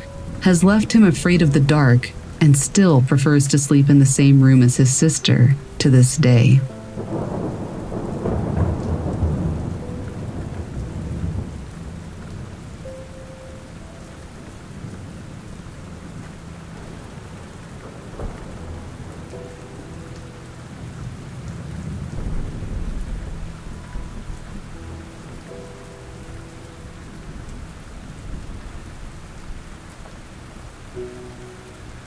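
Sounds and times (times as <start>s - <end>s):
steady rain: 0.0s - 32.0s
rolling thunder: 6.7s - 12.8s, 14.7s - 25.7s.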